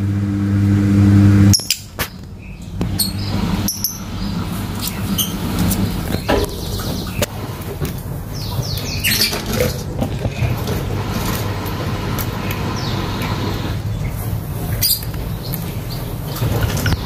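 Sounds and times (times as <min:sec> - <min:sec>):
steady low hum: 0:00.0 - 0:09.0
lovebirds chirping: 0:08.3 - 0:09.5.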